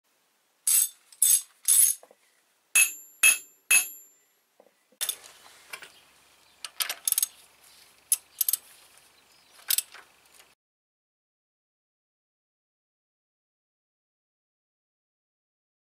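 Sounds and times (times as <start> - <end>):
metal wrench clicking on bolt: 0.7 - 2.0, 2.8 - 4.1, 6.6 - 7.3, 8.1 - 8.6
sharp metallic clinks: 0.7 - 2.0, 2.8 - 4.2.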